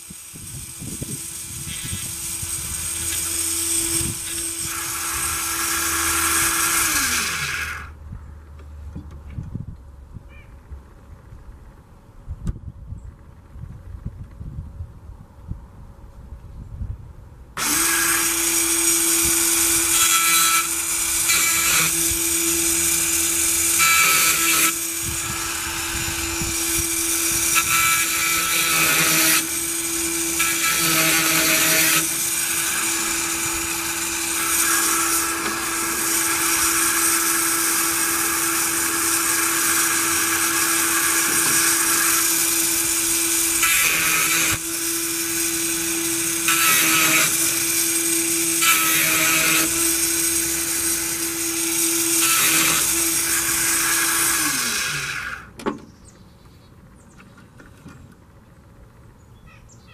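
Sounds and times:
electric sharpener motor whine: 0.0s - 7.9s, 17.6s - 55.5s.

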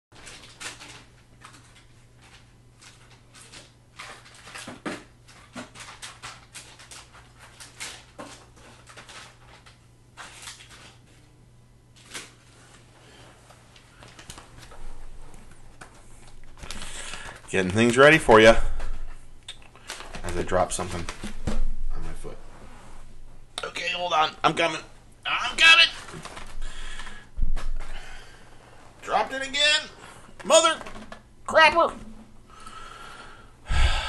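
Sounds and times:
low electrical hum: 0.1s - 34.0s
objects handled at a desk: 0.2s - 11.3s, 30.2s - 31.3s.

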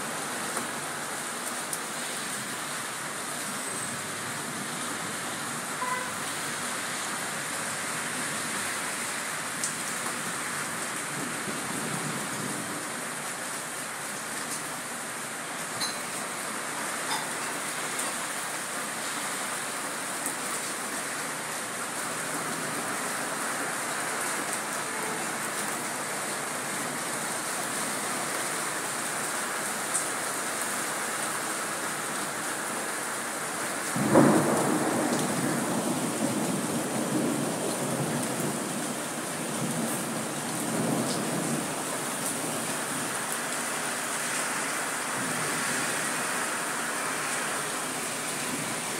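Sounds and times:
rain falling on a wet street: 0.0s - 48.9s
thunder clap and rumble: 33.9s - 38.6s.

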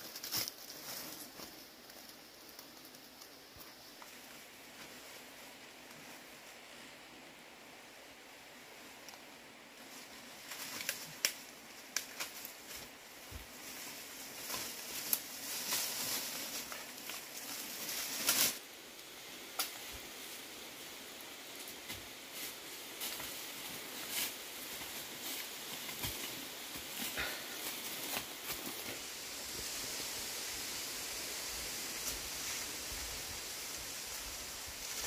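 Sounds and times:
dry leaves rustling: 0.0s - 6.9s, 8.9s - 35.0s
twigs snapping: 10.5s - 12.9s.

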